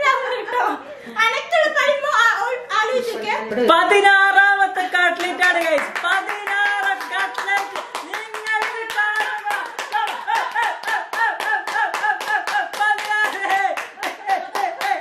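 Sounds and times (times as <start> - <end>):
rhythmic hand clapping: 4.9 - 15.0.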